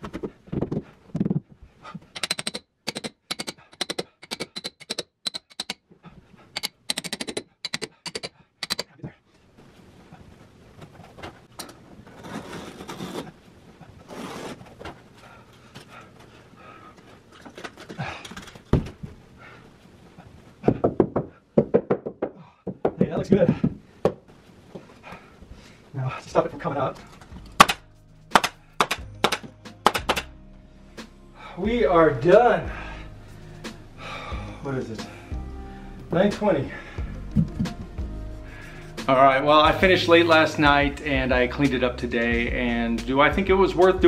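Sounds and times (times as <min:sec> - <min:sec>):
hammer tapping metal tool: 0:02.2 - 0:05.8, 0:06.6 - 0:08.9, 0:27.6 - 0:30.3.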